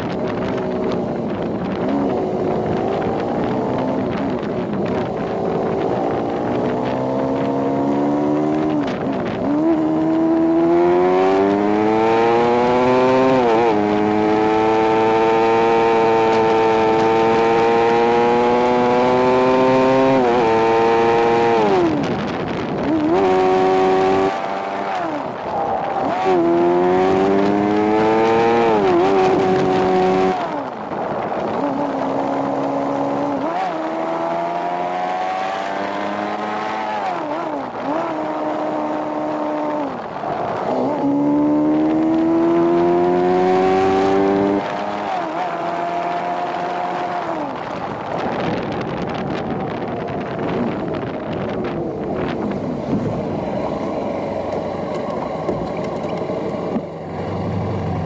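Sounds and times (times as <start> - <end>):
motorcycle engine accelerating: 0.0 - 58.0.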